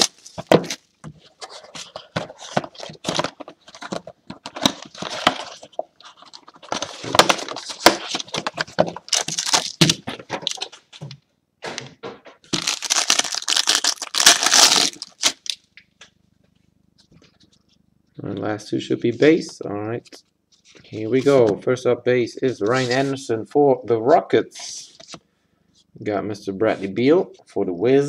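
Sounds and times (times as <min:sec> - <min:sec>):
plastic wrap crinkling and tearing: 0:00.0 - 0:10.7, 0:12.5 - 0:15.6.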